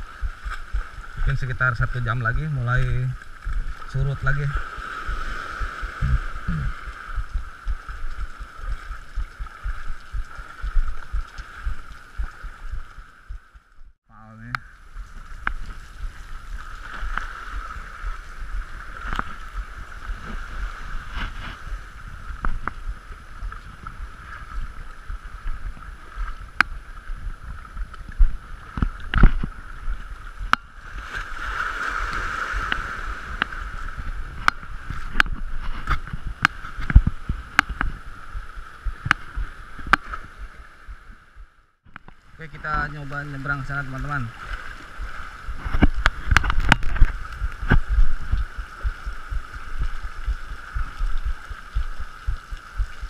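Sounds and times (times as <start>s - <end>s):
seawater sloshing against rocks: 14.8s - 40.9s
sharp knocks and clicks: 45.6s - 48.9s.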